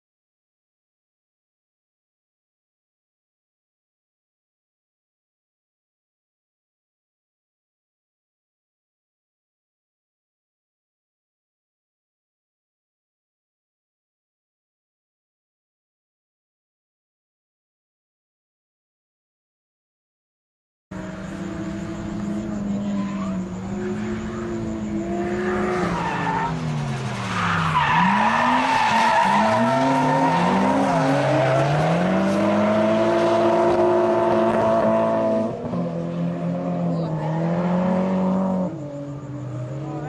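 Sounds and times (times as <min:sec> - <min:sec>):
car engines revving: 0:20.9 - 0:40.0
tyres squealing: 0:25.3 - 0:32.3.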